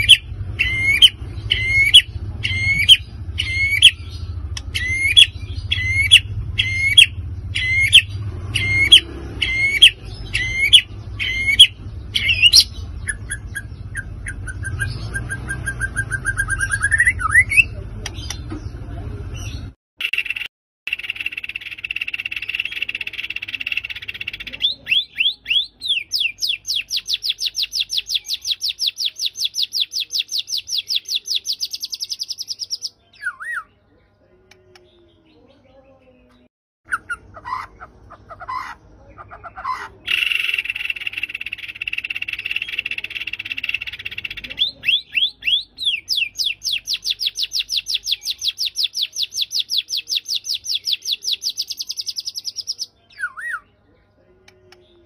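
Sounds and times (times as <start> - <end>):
bird whistles: 0.0 - 4.0, 4.7 - 12.7
bird singing: 0.0 - 55.0.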